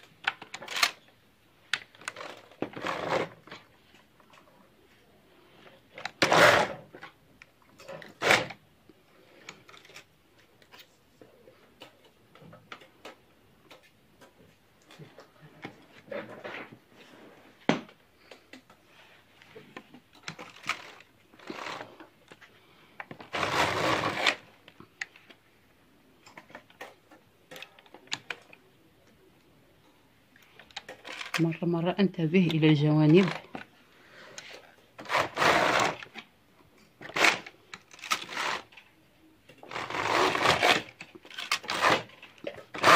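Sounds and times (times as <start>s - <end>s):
knitting machine carriage clattering: 39.7s - 42.9s.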